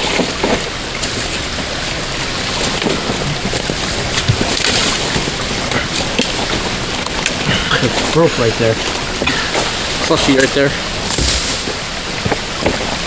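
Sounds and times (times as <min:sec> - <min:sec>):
small splashes and clicks: 0:00.0 - 0:08.2
water rushing: 0:00.0 - 0:13.0.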